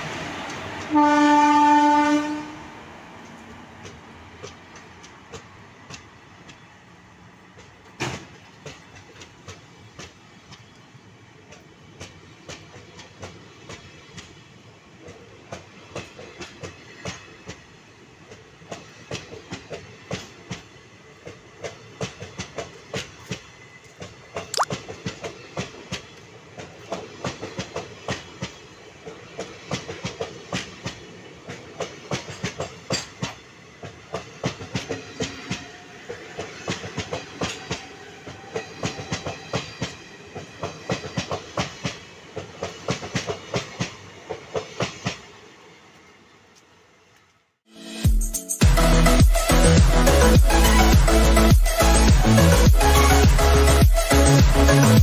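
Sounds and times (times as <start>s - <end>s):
loud train horn blast: 0.9s - 2.8s
train wheels clicking over rail joints: 3.2s - 47.4s.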